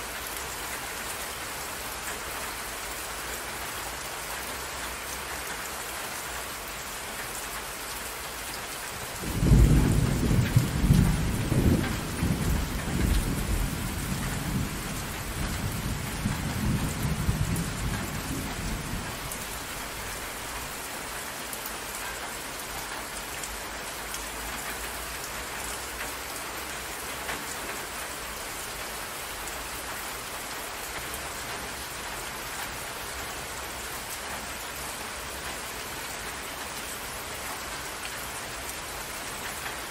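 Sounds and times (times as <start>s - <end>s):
steady rain: 0.0s - 39.9s
thunder rumbling: 9.0s - 20.7s.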